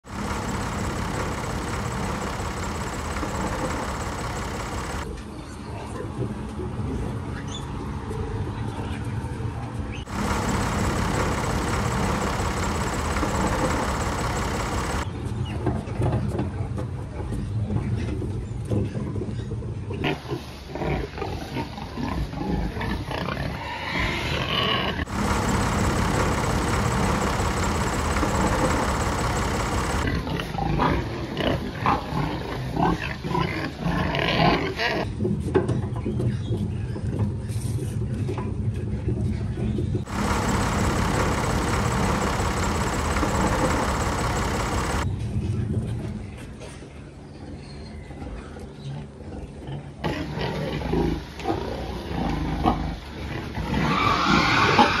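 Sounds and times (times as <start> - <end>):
heavy machine engine running: 0.0 - 5.2, 10.0 - 15.1, 25.0 - 30.4, 40.0 - 45.1
pigs grunting and squealing: 19.9 - 25.0, 30.2 - 35.2, 49.9 - 55.0.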